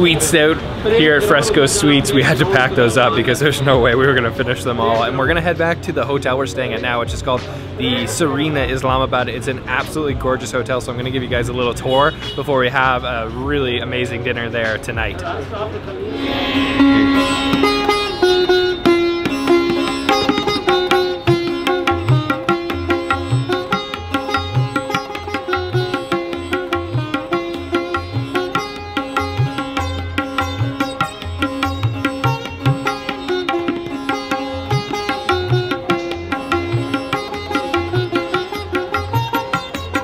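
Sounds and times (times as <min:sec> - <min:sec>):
plucked sitar notes: 0:00.0 - 0:40.0
tabla bass strokes: 0:16.0 - 0:40.0.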